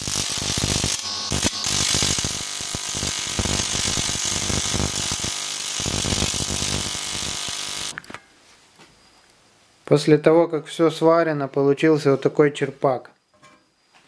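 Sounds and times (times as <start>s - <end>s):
welding arc crackling buzz: 0.0s - 8.0s.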